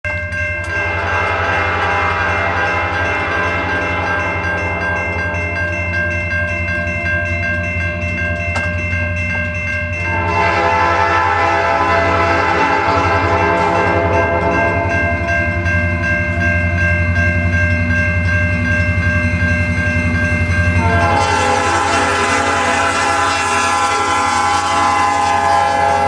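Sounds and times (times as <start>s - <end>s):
railroad crossing bell ringing: 0.0s - 26.0s
locomotive horn: 0.7s - 5.9s, 10.1s - 14.9s, 20.8s - 26.0s.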